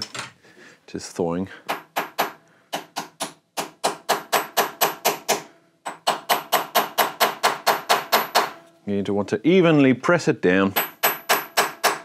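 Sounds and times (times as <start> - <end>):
hammer striking metal: 1.7 - 8.7, 10.7 - 12.0.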